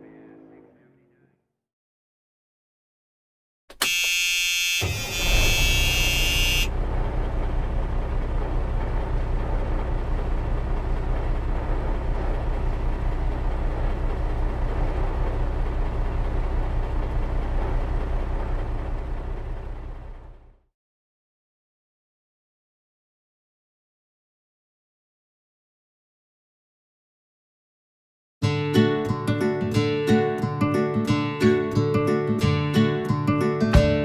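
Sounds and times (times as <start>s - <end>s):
vehicle horn: 3.7s - 6.8s
engine low pulsing rumble: 5.1s - 20.6s.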